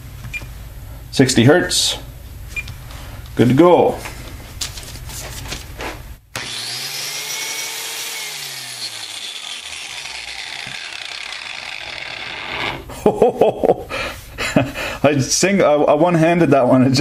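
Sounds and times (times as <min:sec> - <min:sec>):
angle grinder motor whine: 0:06.4 - 0:12.9.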